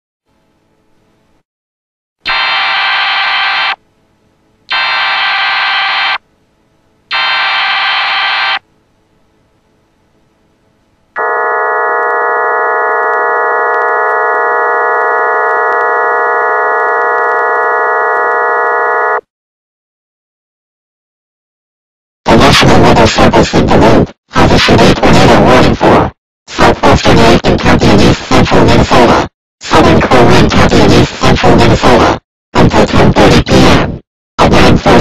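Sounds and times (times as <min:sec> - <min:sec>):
buzzy digital header bursts: 0:02.2 - 0:03.8, 0:04.7 - 0:06.2, 0:07.1 - 0:08.6.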